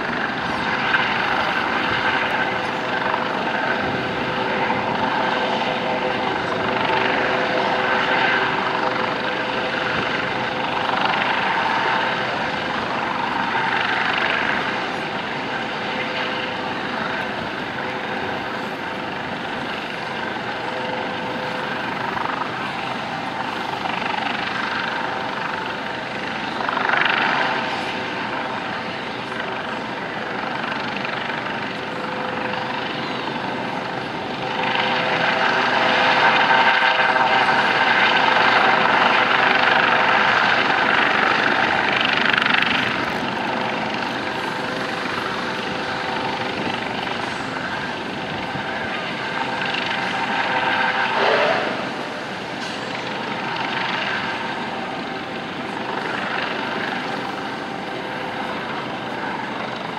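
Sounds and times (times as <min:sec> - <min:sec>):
helicopter flying low: 0:00.0 - 0:59.9.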